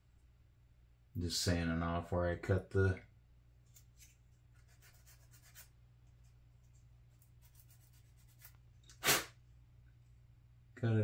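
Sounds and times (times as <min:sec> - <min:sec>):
sandpaper scratching plastic: 0:04.0 - 0:05.7, 0:07.4 - 0:09.3.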